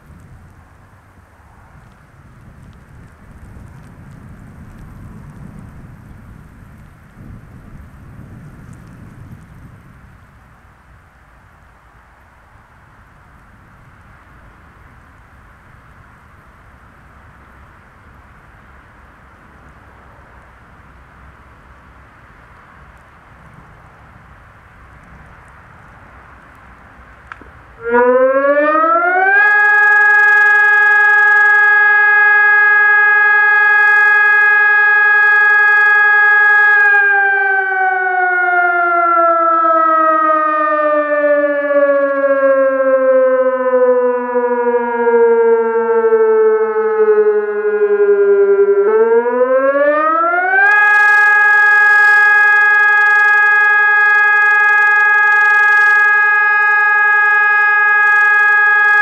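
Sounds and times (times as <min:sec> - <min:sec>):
electronic siren: 0:27.8 - 0:59.0.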